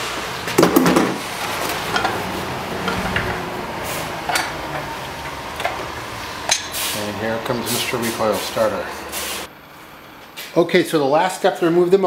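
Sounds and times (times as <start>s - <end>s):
metal parts clacking: 0.6s - 2.2s.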